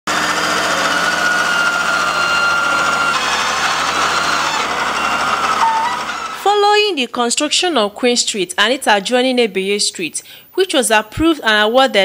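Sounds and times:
high whine: 0.1 - 6.5
wheel loader engine under load: 0.1 - 6.7.

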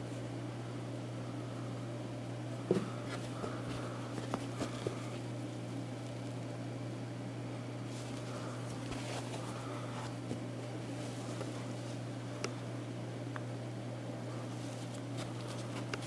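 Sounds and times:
low steady hum: 0.0 - 16.0
soft rustles of cap fabric: 7.8 - 12.0.

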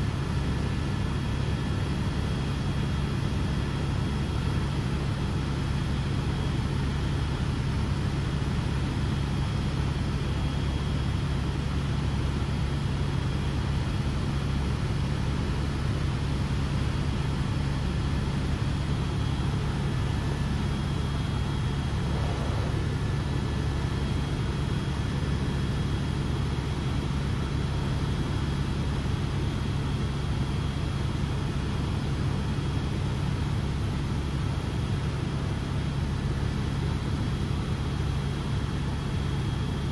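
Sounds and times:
helicopter cabin drone: 0.0 - 39.9
faint high whine: 17.1 - 26.5.

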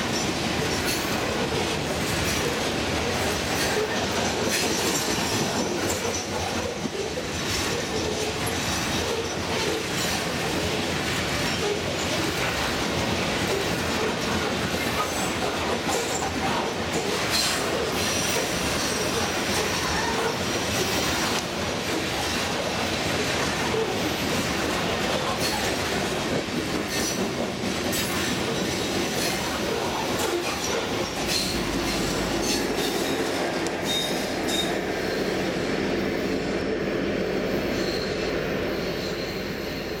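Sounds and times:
clicking over rail joints: 0.0 - 34.8
diesel locomotive rumble: 0.0 - 40.0
freight cars rolling on rails: 0.0 - 40.0
wheel squeals: 33.8 - 34.8, 37.7 - 40.0.

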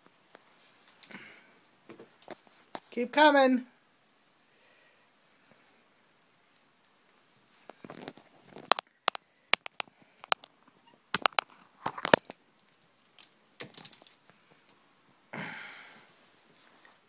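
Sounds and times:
phone rustling: 7.6 - 14.4
sharp clicks: 8.7 - 10.5, 11.1 - 11.5.

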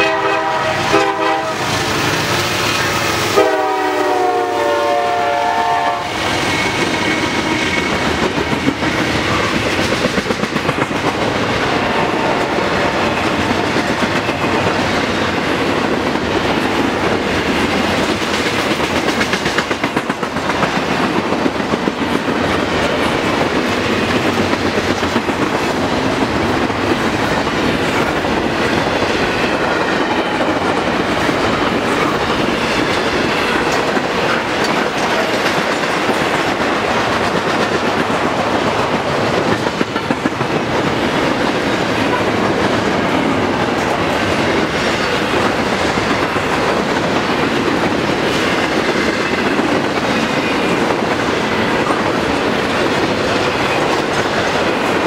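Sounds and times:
train wheels rumbling on rail: 0.0 - 55.0
wheels clicking over rail joints: 12.4 - 55.0.

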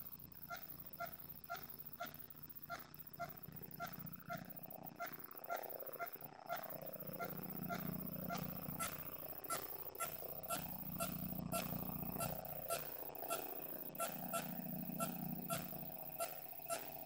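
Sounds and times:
low steady hum: 0.0 - 17.0
pitched ticking: 0.0 - 17.0.

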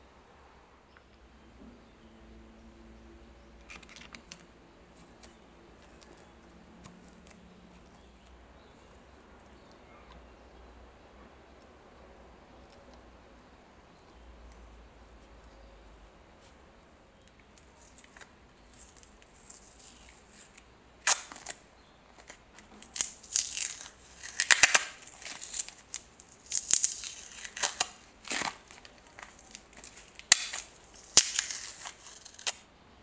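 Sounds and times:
masking tape ripping: 17.6 - 21.6, 22.2 - 32.6.

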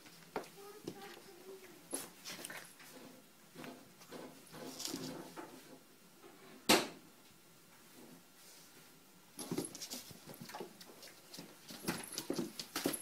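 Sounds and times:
paws skittering on wooden floor: 9.6 - 13.0.

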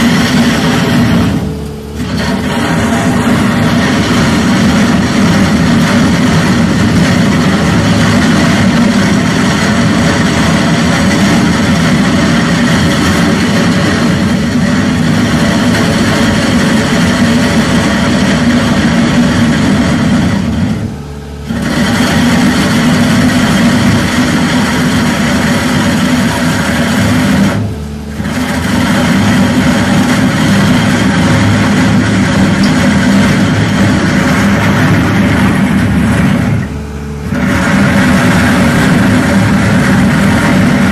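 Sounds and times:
cutter grinding asphalt: 0.0 - 40.9
loader engine: 0.0 - 40.9.

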